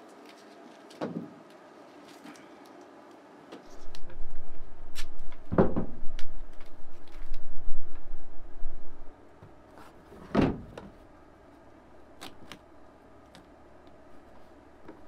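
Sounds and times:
duct tape ripping off roll: 0:04.9 - 0:05.3.

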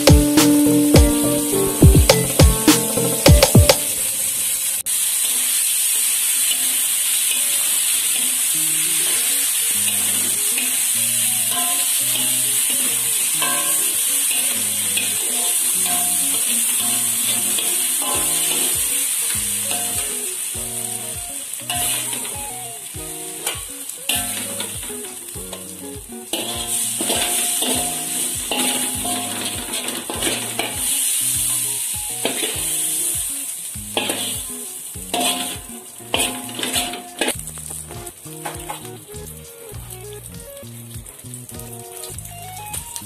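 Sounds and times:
soft background music with beat: 0:00.0 - 0:04.0, 0:08.4 - 0:43.0
fish sizzling in oil: 0:03.8 - 0:43.0
metal spatula scraping wok: 0:26.3 - 0:33.0, 0:34.0 - 0:34.4, 0:35.1 - 0:37.4.

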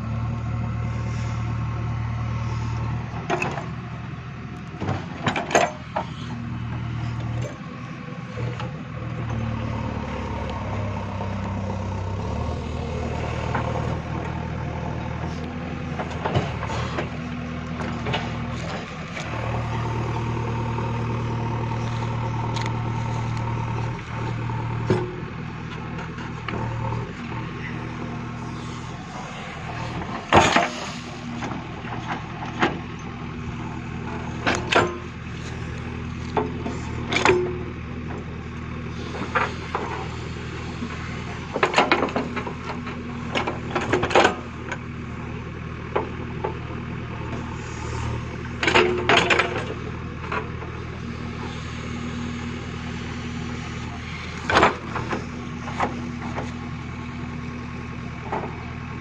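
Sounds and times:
diesel engine running: 0:00.0 - 0:59.0
metallic clanks from digger bucket: 0:04.8 - 0:06.3, 0:29.7 - 0:33.1, 0:36.3 - 0:37.7, 0:48.5 - 0:50.7, 0:54.1 - 0:56.6.

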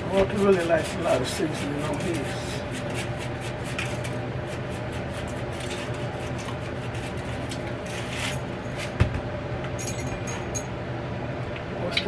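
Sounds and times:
low electrical hum: 0:00.0 - 0:12.0
light glassy clinks: 0:09.8 - 0:10.7.

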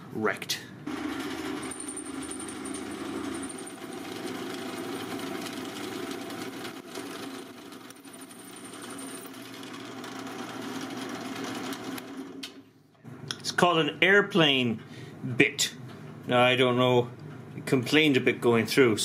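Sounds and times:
drill press boring metal: 0:00.9 - 0:12.4.

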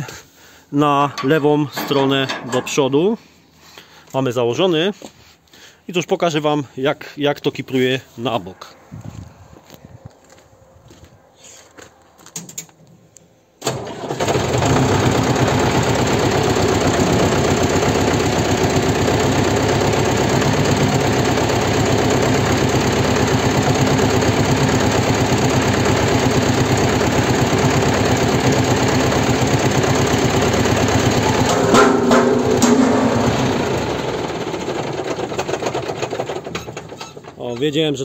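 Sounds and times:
tractor engine running: 0:00.9 - 0:03.0, 0:13.6 - 0:38.0.

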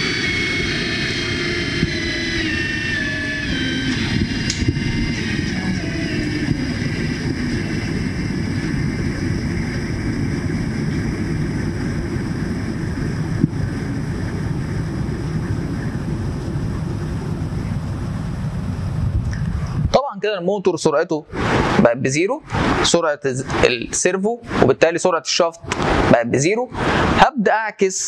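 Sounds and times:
machine running down: 0:00.0 - 0:19.0
machine whine: 0:00.0 - 0:28.0.

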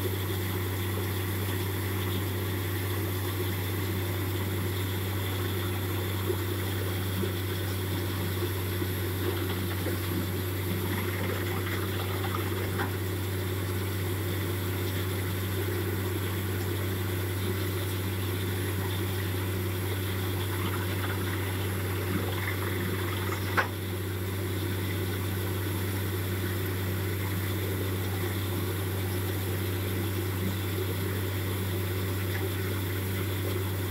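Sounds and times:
water gushing and splashing: 0:06.3 - 0:14.0, 0:18.5 - 0:24.0.

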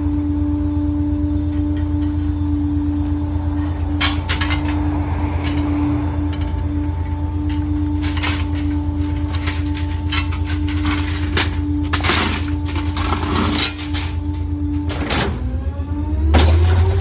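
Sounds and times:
constant hum: 0:00.0 - 0:17.0
garbage truck engine idling: 0:00.0 - 0:17.0
metal clanks and rattles: 0:03.5 - 0:15.6.

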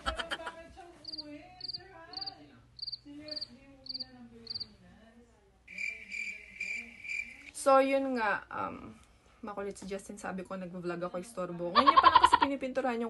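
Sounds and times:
pulsing insect trill: 0:01.1 - 0:04.6, 0:05.7 - 0:07.5
cricket chirping: 0:01.1 - 0:04.7, 0:05.7 - 0:07.5.

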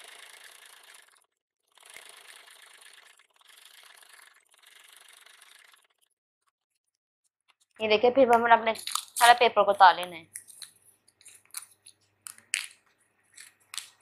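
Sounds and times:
sewing machine stitching: 0:00.0 - 0:06.1.

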